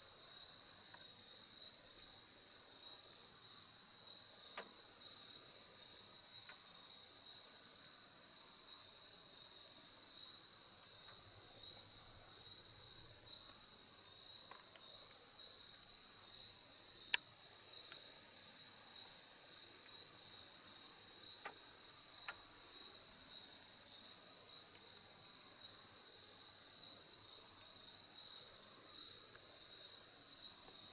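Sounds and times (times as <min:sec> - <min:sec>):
faint ticks: 0:00.8 - 0:01.2, 0:04.5 - 0:04.8, 0:06.4 - 0:06.7, 0:11.0 - 0:11.3, 0:14.4 - 0:15.8, 0:17.0 - 0:18.2, 0:21.2 - 0:22.6.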